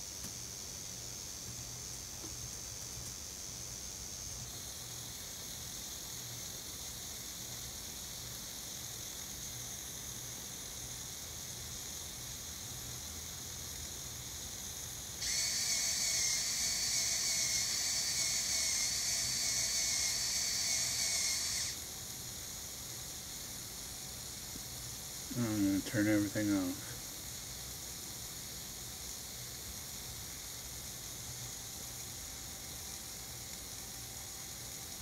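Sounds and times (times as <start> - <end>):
faint hiss: 0.0 - 35.0
servo whining: 15.2 - 21.8.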